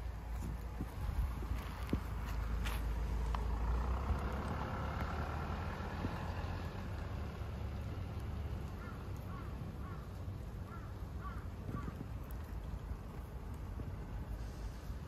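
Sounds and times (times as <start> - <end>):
distant traffic rumble: 0.0 - 15.0
birds calling: 8.7 - 12.4.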